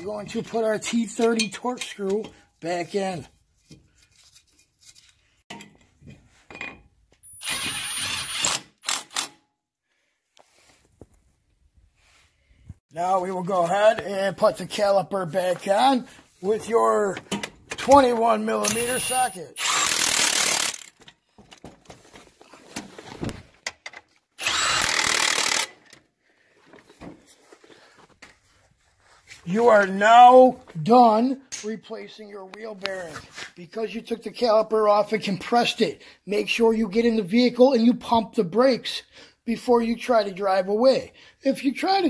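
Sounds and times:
impact wrench burst: 0:07.4 - 0:09.4, 0:18.6 - 0:21.0, 0:24.4 - 0:25.8
metal clicks and knocks: 0:17.2 - 0:18.1
power tool whining: 0:18.6 - 0:20.9, 0:24.4 - 0:25.7.

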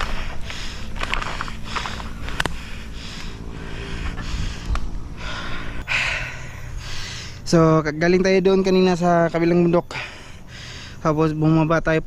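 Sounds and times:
person breathing hard: 0:00.0 - 0:07.5, 0:09.8 - 0:11.0.

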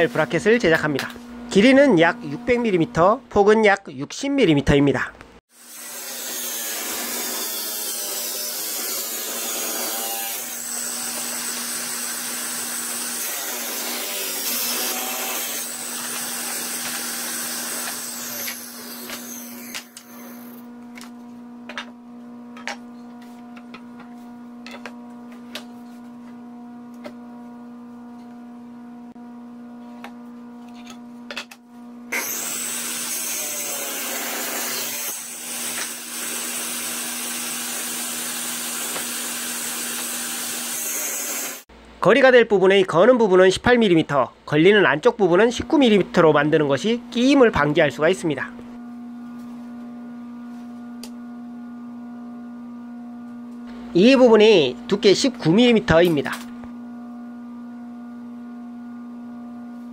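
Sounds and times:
table saw cutting wood: 0:05.5 - 0:20.7, 0:32.1 - 0:41.7
table saw running freely: 0:05.6 - 0:20.6, 0:32.1 - 0:41.7.

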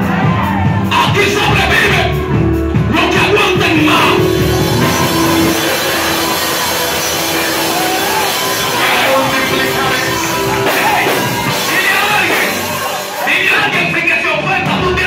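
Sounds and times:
loud live worship music: 0:00.0 - 0:15.0
voices singing: 0:03.0 - 0:14.9.

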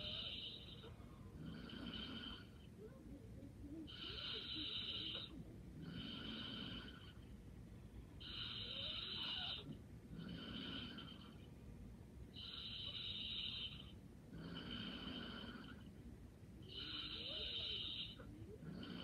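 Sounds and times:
person snoring lightly: 0:00.0 - 0:02.6, 0:03.8 - 0:07.2, 0:08.2 - 0:11.4, 0:12.4 - 0:15.9, 0:16.6 - 0:19.0.

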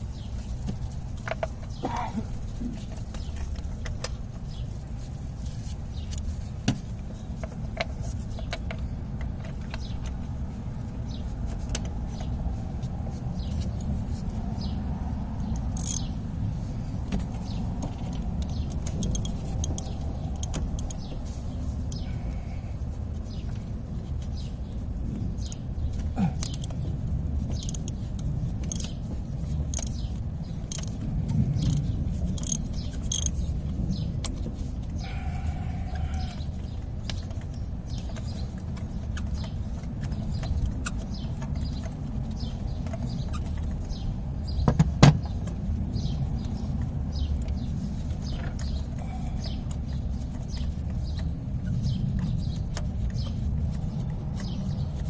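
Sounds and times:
socket wrench metallic clicks: 0:15.6 - 0:16.1, 0:18.4 - 0:21.0, 0:30.7 - 0:31.0, 0:31.6 - 0:33.4.

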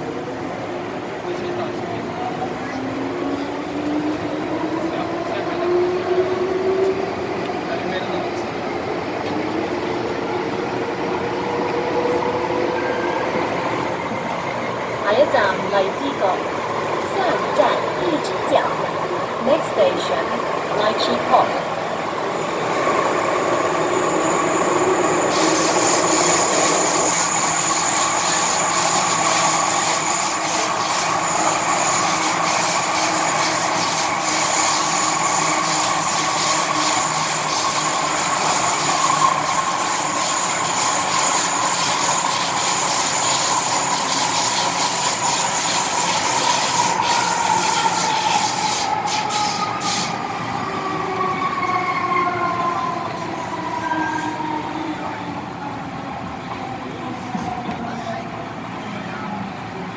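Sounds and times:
train wheels rumbling on rail: 0:00.0 - 0:59.9
train motor whine: 0:23.4 - 0:50.2.

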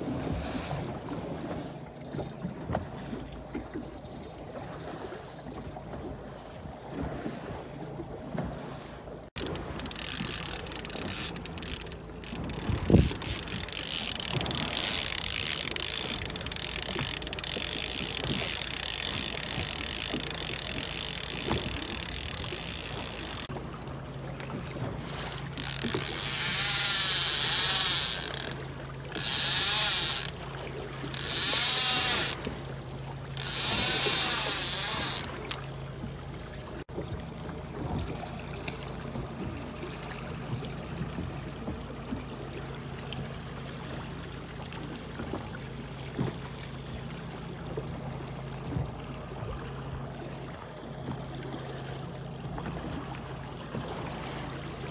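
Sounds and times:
wind: 0:00.0 - 0:54.9
low motor hum: 0:00.1 - 0:54.9
wavering mechanical whir: 0:09.4 - 0:23.5, 0:31.1 - 0:32.6.

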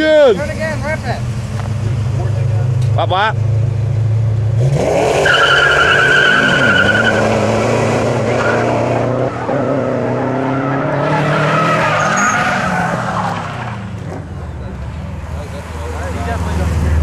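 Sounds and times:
car engine revving: 0:00.4 - 0:17.0
tyres squealing: 0:05.2 - 0:07.6, 0:08.2 - 0:14.6.

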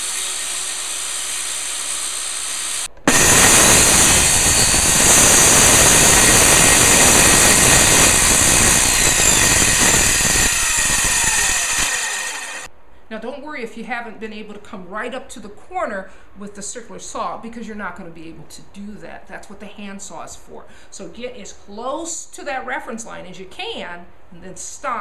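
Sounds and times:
circular saw cutting board: 0:00.0 - 0:12.7.

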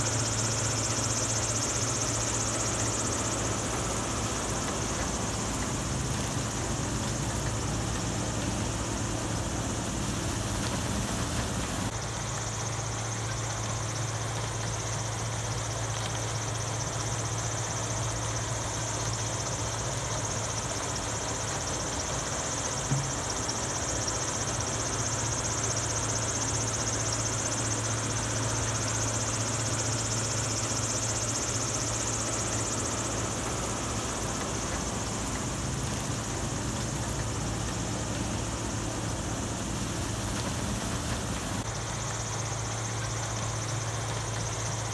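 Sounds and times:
diesel engines under load: 0:00.0 - 0:44.9
brief knock: 0:22.9 - 0:23.1.

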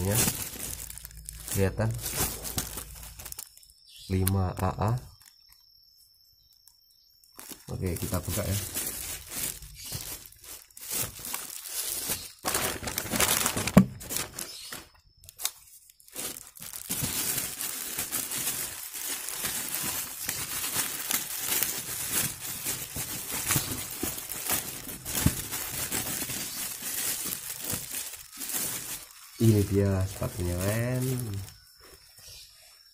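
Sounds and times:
plastic wrapping crinkling and tearing: 0:00.0 - 0:05.6, 0:07.2 - 0:32.0.

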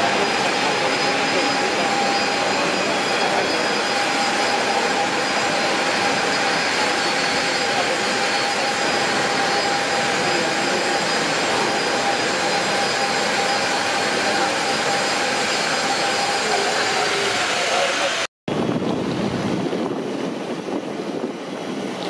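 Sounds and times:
jet engines running: 0:00.0 - 0:22.0.

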